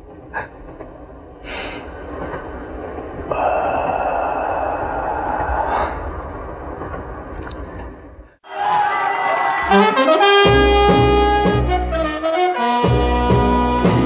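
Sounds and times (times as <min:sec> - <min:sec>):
man gasping breaths: 0:03.3 - 0:06.4
loud rushing noise with high whine: 0:03.3 - 0:06.9.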